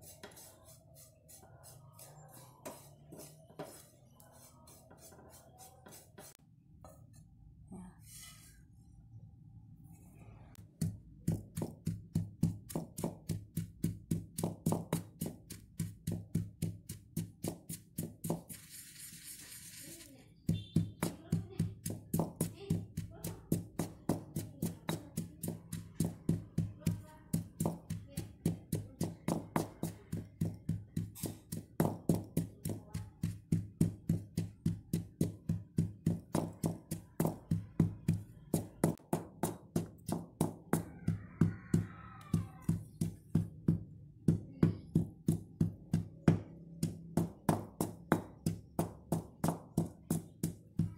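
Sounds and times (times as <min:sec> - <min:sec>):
stone pestle pounding in mortar: 0:10.7 - 0:18.6, 0:20.4 - 0:50.9.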